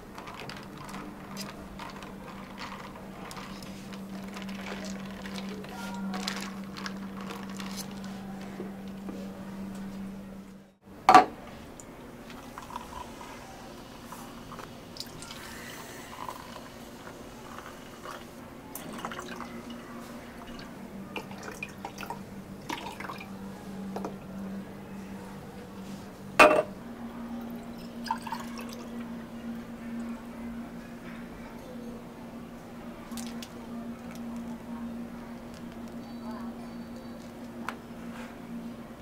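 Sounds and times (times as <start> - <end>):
liquid pouring: 0.0 - 8.2, 12.4 - 13.3, 14.5 - 19.8, 20.4 - 23.3, 27.5 - 29.0
low machine hum: 0.0 - 39.0
cups clinking and tapping: 26.4 - 26.7.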